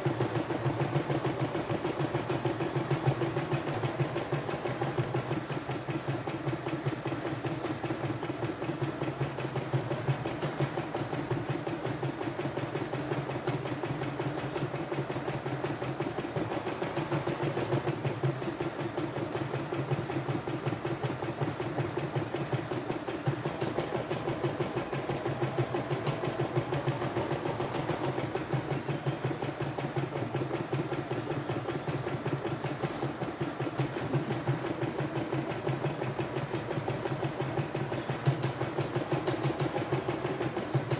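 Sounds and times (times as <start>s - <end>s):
embroidery machine needle clatter: 0.0s - 40.9s
motor hum: 22.1s - 40.9s.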